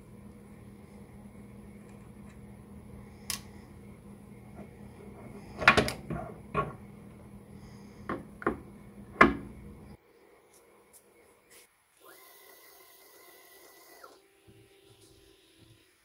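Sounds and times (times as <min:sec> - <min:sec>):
metal clunks and knocks: 0:05.6 - 0:06.8, 0:08.1 - 0:09.5.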